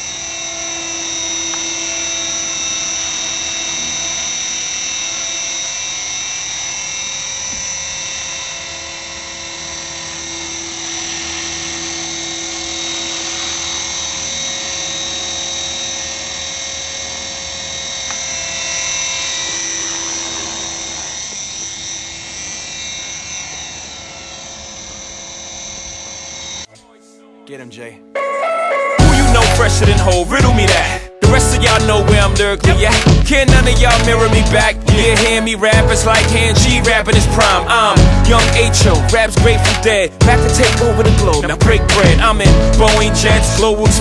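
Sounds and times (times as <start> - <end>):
electric motor high-pitched whine: 0.0 - 26.7
rotor blades whirring: 0.0 - 26.7.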